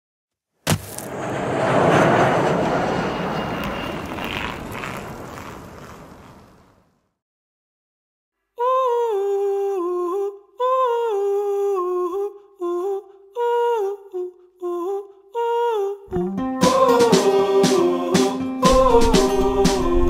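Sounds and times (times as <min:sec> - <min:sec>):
person humming a melody: 0:08.6 - 0:20.0
guitar-led band music: 0:16.2 - 0:20.0.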